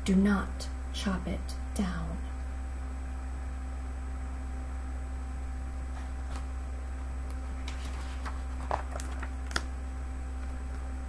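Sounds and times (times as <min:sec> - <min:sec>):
low electrical hum: 0:00.0 - 0:11.0
book pages rustling: 0:07.4 - 0:09.7.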